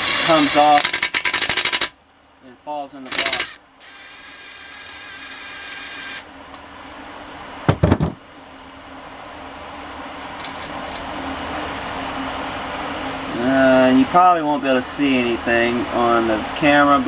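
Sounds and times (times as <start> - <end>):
steady low hum: 0.0 - 17.0
impact driver motor whine: 3.0 - 6.3
loud knocks: 7.7 - 8.2.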